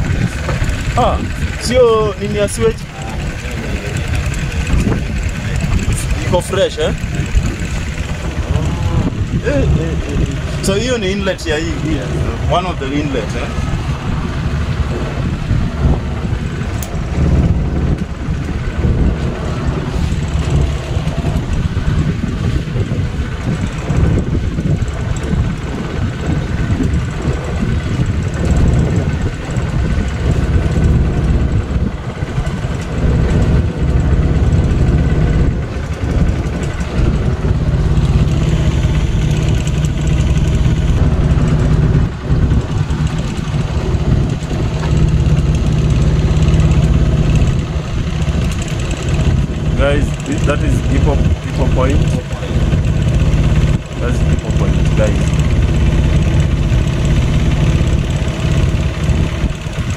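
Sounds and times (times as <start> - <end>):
motorboat engine rumbling: 0.0 - 59.9.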